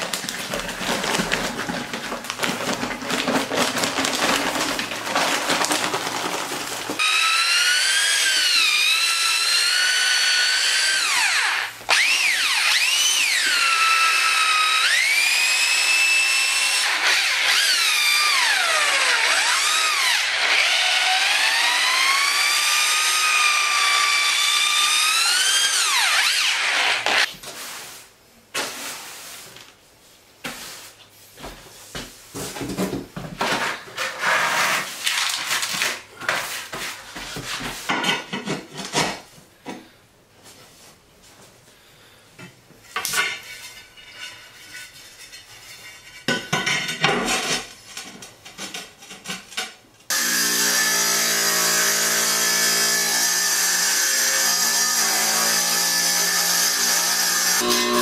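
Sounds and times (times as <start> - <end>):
trowel scraping and knocking: 0.0 - 7.0, 30.4 - 39.3, 42.8 - 49.8
wet tile saw motor hum: 50.1 - 58.0.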